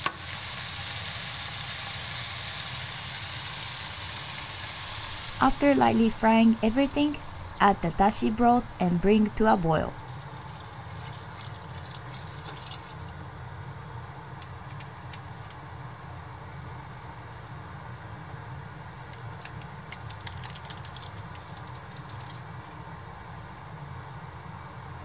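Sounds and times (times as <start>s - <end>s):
steady low hum: 4.4s - 10.5s
water pouring into a pot: 10.0s - 13.4s
faint ticks of sprinkled granules: 19.1s - 22.8s.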